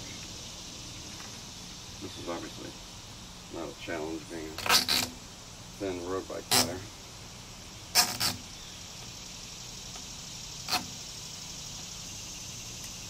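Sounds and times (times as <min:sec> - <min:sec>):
sharp plastic clicks of bike rack: 0:04.6 - 0:05.2, 0:07.9 - 0:08.5, 0:10.7 - 0:11.0.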